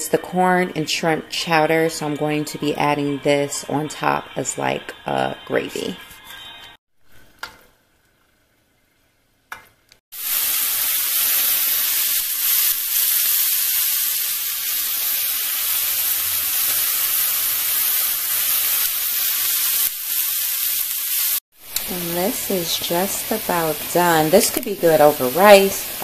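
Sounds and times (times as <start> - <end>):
fish frying in oil: 9.7 - 26.0.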